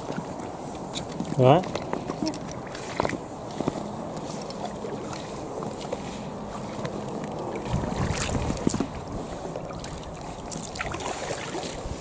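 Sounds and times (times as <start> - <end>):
kayak paddles splashing in water: 4.2 - 12.0.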